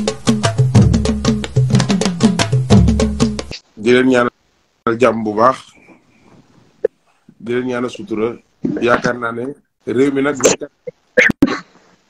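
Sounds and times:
fast dense percussion: 0:00.0 - 0:03.6.

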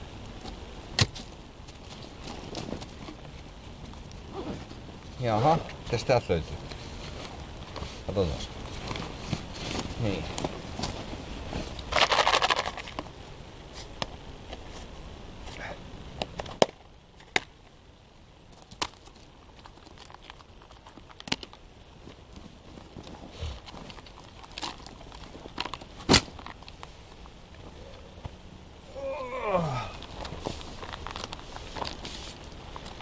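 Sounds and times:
rustling of gear in backpack: 0:01.2 - 0:05.6, 0:06.6 - 0:13.0, 0:29.8 - 0:33.0.

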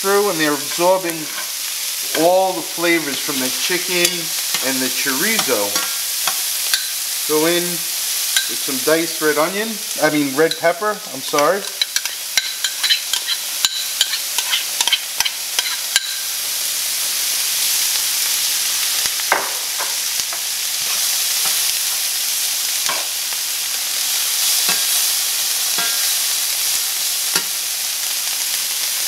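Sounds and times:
vegetables sizzling in skillets: 0:00.0 - 0:29.0
spoon scraping a skillet: 0:00.2 - 0:07.6, 0:10.3 - 0:16.3, 0:19.3 - 0:23.2, 0:24.0 - 0:26.4.

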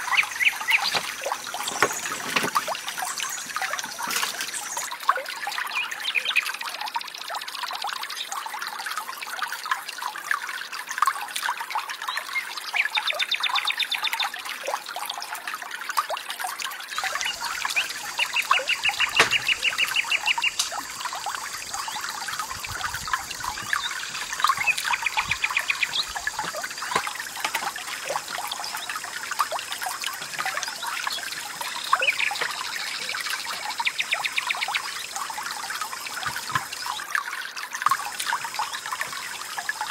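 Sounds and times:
birds chirping: 0:00.0 - 0:04.9, 0:17.0 - 0:35.0
stream trickling: 0:00.0 - 0:39.9.

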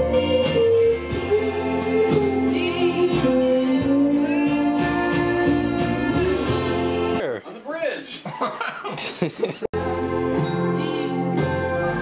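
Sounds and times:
person singing: 0:00.0 - 0:07.1
bass: 0:00.0 - 0:07.2, 0:09.8 - 0:12.0
guitar: 0:00.0 - 0:07.2, 0:09.8 - 0:12.0
drums: 0:00.0 - 0:07.4, 0:09.0 - 0:12.0.

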